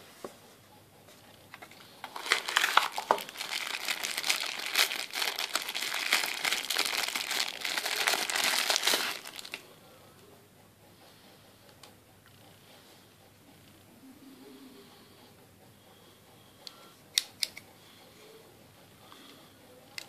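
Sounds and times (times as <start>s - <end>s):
plastic bag crinkling: 2.0s - 9.6s.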